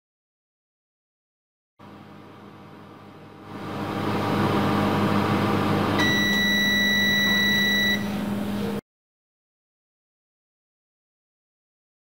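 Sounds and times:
microwave oven humming: 1.8 - 8.8
long microwave beep: 6.0 - 8.4.

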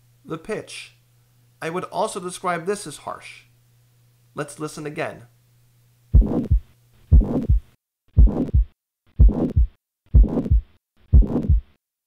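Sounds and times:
heartbeat with harsh murmur: 6.1 - 11.8.

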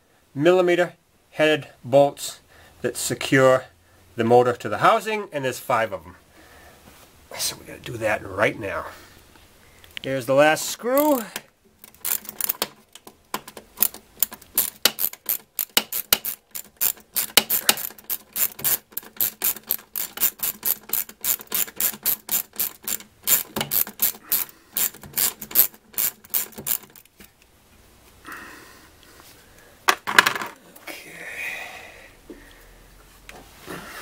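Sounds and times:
ratchet wrench clicking: 11.8 - 12.8, 13.4 - 27.1.

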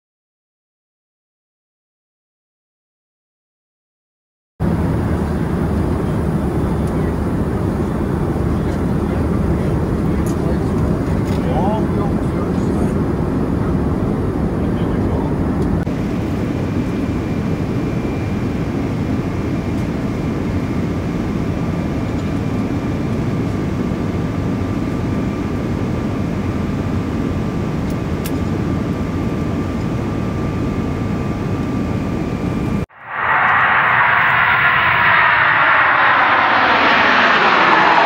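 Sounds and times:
airliner cabin rumble: 4.6 - 15.9, 32.5 - 38.0
faint high whine: 32.1 - 38.0.

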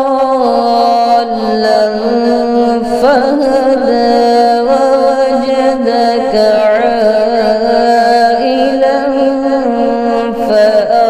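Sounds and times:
man reciting melodically: 0.0 - 11.0.

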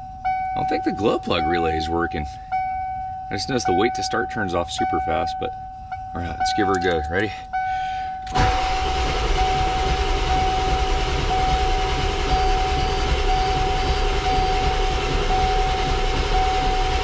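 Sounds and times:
steady high tone: 0.0 - 17.0
starter motor cranking diesel engine: 6.7 - 17.0.

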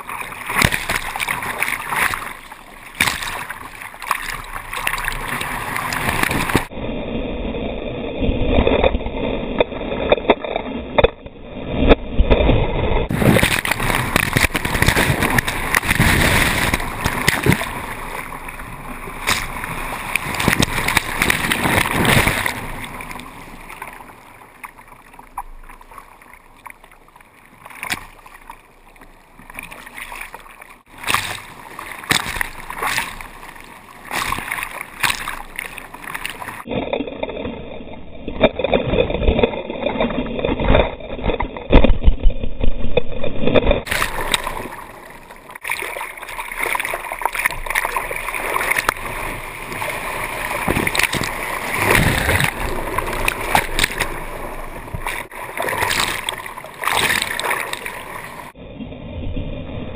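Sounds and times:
water splashing over kayak deck: 0.0 - 6.7, 11.8 - 36.8, 43.6 - 58.6
surf breaking: 0.0 - 6.8, 11.8 - 26.4, 27.4 - 37.6, 43.4 - 58.6.

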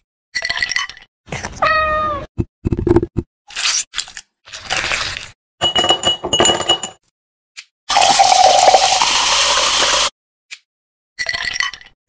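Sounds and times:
glass and ice clinking: 5.6 - 7.0, 8.0 - 10.0
soda pouring over ice: 7.9 - 10.1.

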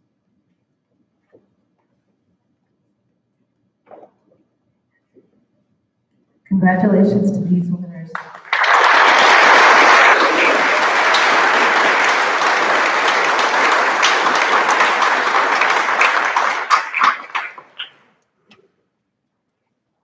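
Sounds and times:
audience applauding: 8.1 - 18.0.

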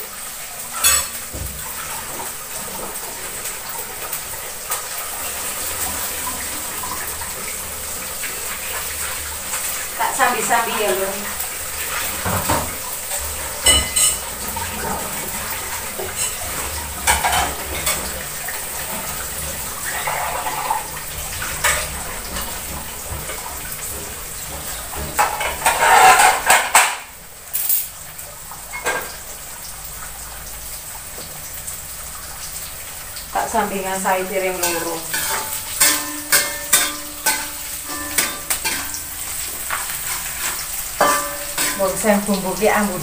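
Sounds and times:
dishes and cutlery clattering: 0.7 - 2.2, 11.9 - 18.2, 18.9 - 28.0, 28.7 - 29.2, 34.6 - 42.0.

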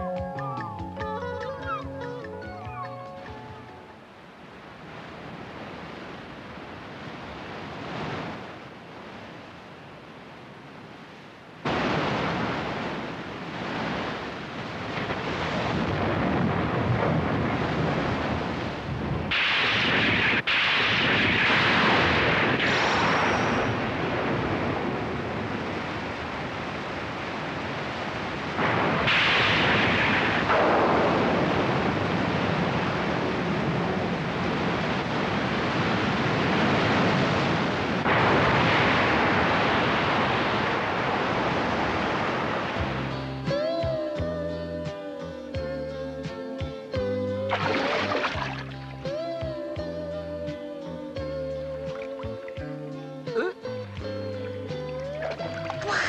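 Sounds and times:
wind: 0.0 - 56.0
heavy surf rushing: 2.6 - 44.1, 47.3 - 49.4
rain and spray hissing: 11.6 - 18.5, 19.3 - 43.2.

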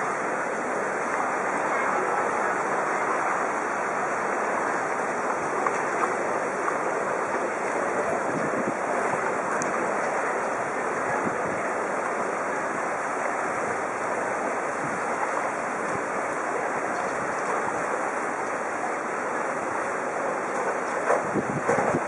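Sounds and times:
floodwater rushing: 0.0 - 22.0.

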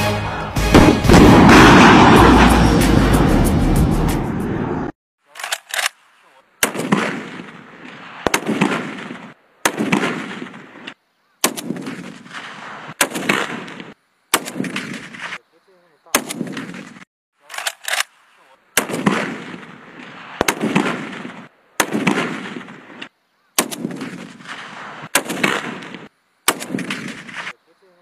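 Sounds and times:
rifle shots echoing: 0.7 - 2.6, 6.6 - 15.4, 16.1 - 27.6.

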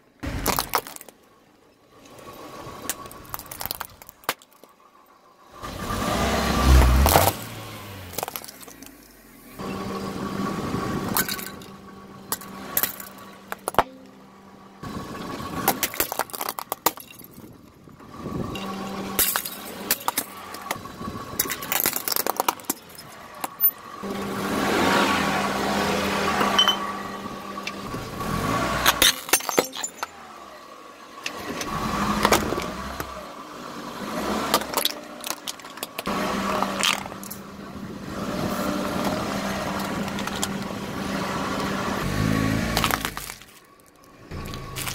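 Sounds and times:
car engine running: 0.0 - 44.9
plastic cracking under car tyre: 15.6 - 17.5, 42.7 - 44.9.

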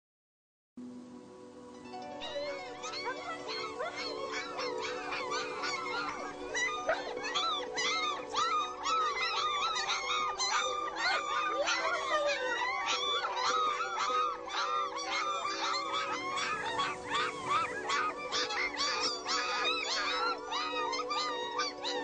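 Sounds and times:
background music with held notes: 0.8 - 22.0
dogs yelping and howling: 2.1 - 22.0.

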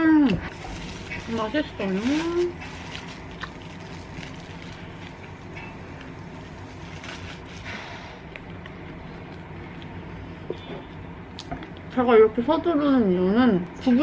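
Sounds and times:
steady low hum: 0.0 - 14.0
sandwich wrapper rustling: 0.4 - 7.9
chewing: 2.8 - 6.2.

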